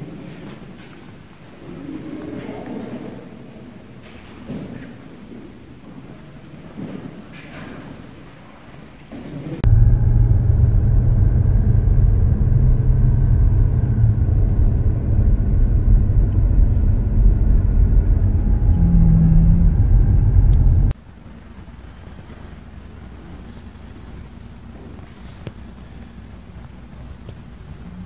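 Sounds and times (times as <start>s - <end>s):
car engine and tyre rumble: 9.6s - 28.0s.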